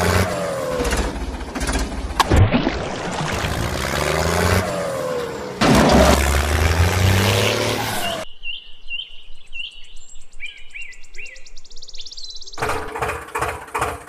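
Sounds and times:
loud vehicle engine: 0.0s - 8.2s
water splashing: 2.2s - 4.8s
birds chirping: 6.1s - 12.9s.

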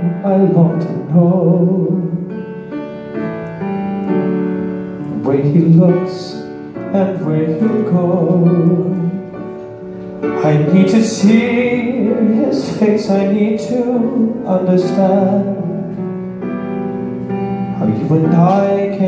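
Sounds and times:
man singing into microphone: 0.0s - 2.3s, 5.1s - 9.4s, 10.3s - 16.0s, 17.8s - 19.0s
piano accompaniment: 0.0s - 19.0s.

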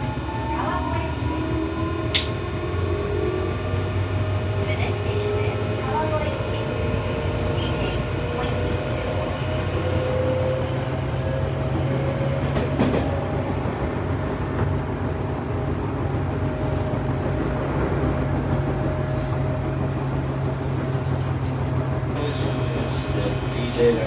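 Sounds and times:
electric train rumble and whine: 0.0s - 24.0s.

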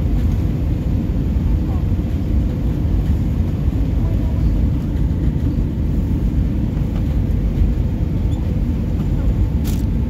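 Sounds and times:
airplane cabin rumble: 0.0s - 10.0s.

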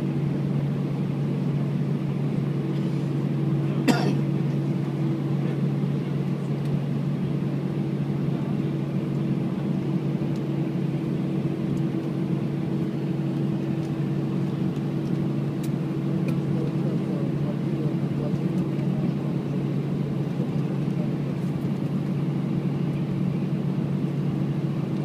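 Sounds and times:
aircraft cabin hum and rushing: 0.0s - 25.0s.

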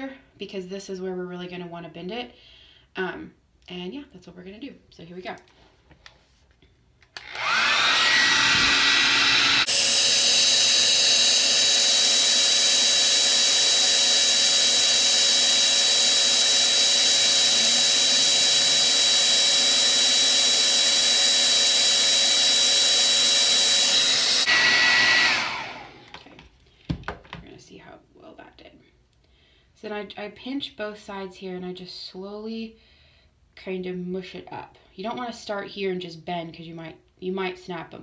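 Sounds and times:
hair dryer blowing with high whine: 7.2s - 26.4s.

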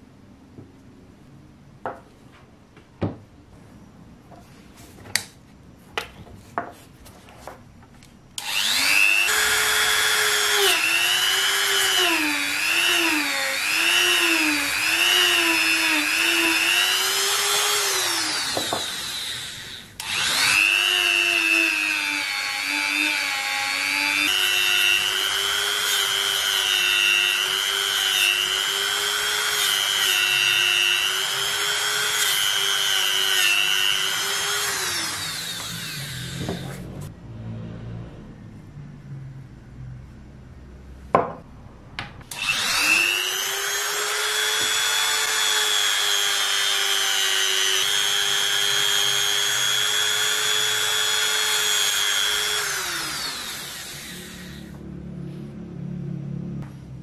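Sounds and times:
rotary tool whining on metal: 8.4s - 37.1s, 42.3s - 54.8s.

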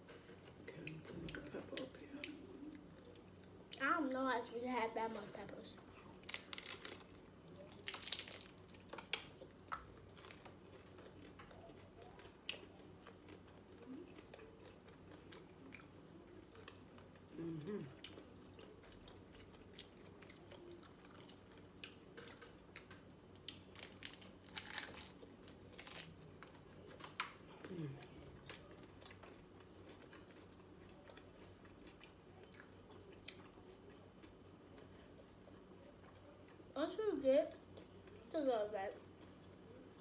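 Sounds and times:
quiet chewing: 0.0s - 4.2s, 5.0s - 40.0s
crisp taco crunches: 6.1s - 17.4s, 18.0s - 36.7s.

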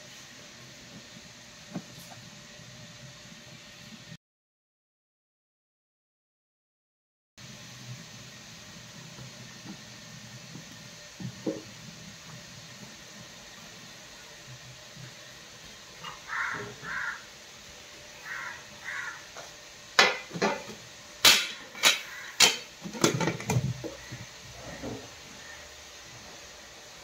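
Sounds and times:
steamer pot hissing: 0.0s - 4.2s, 7.4s - 27.0s
crow cawing: 16.0s - 17.3s, 18.2s - 19.5s, 21.9s - 22.5s, 25.4s - 25.7s
metal pot clanking: 21.3s - 24.0s.

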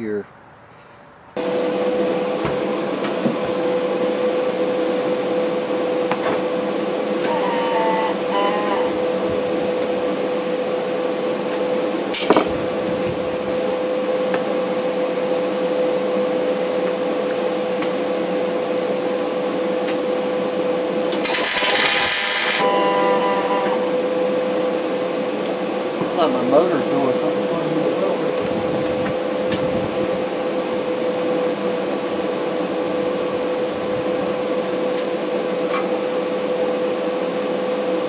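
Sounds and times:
motor humming: 7.1s - 9.9s, 21.1s - 24.1s.

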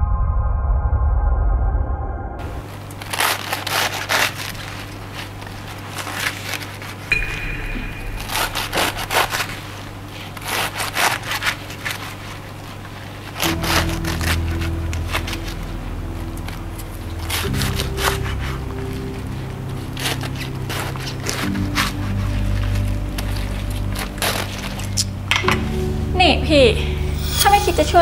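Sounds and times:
soft background music: 2.4s - 28.0s
knife chopping cabbage on board: 10.2s - 12.4s.

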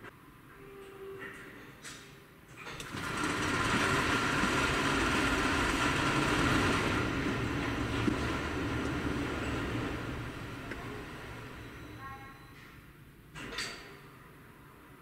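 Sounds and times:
parking garage machinery running: 2.5s - 12.8s.

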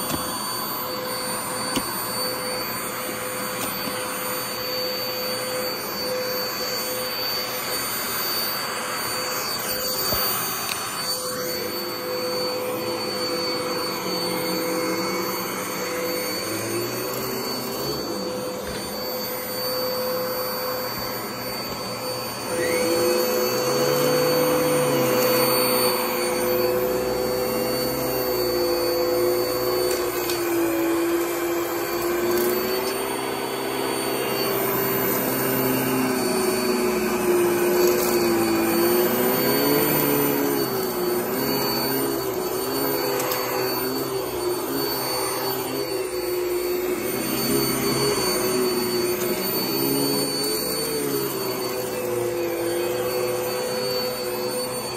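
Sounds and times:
upright vacuum cleaner running: 0.0s - 54.9s.

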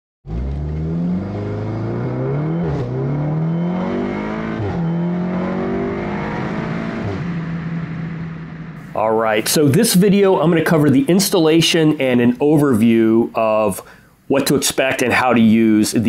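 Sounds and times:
car engine accelerating: 0.3s - 9.0s.

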